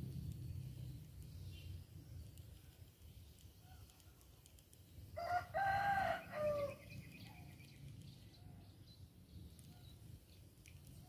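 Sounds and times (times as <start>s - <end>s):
rooster crowing: 5.2s - 6.9s.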